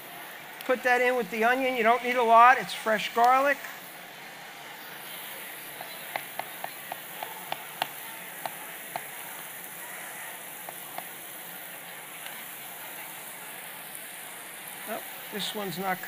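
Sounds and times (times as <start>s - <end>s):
vegetables sizzling in oil: 0.0s - 16.0s
knife tapping on cutting board: 5.8s - 9.1s, 10.7s - 11.1s.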